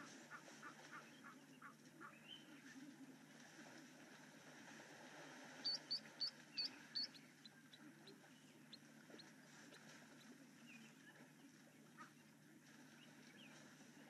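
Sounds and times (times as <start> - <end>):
faint low background noise: 0.0 - 14.0
bird chirping: 5.6 - 9.3
faint ticking bird notes: 5.6 - 12.2.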